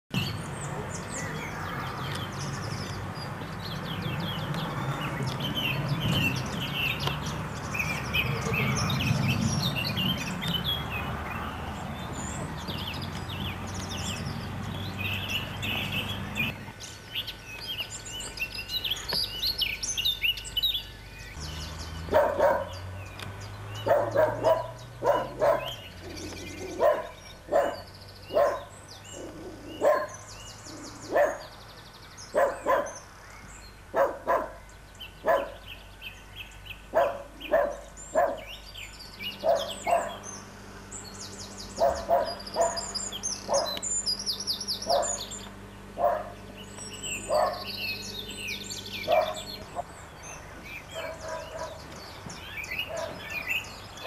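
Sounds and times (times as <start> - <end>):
birds chirping: 0.1 - 54.0
dog barking: 22.1 - 22.8, 23.8 - 25.8, 26.6 - 30.2, 31.1 - 31.5, 32.3 - 33.0, 33.9 - 34.6, 35.2 - 35.6, 36.9 - 38.5, 39.4 - 40.2, 41.8 - 43.8, 44.8 - 45.2, 46.0 - 46.4, 47.3 - 47.7, 49.0 - 49.8, 50.9 - 51.8, 52.8 - 53.3.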